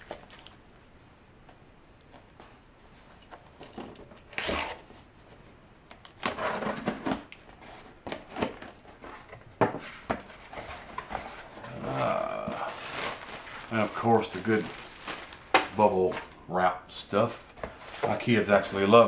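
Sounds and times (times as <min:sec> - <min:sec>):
tape and cardboard tearing: 0:04.2 - 0:04.9.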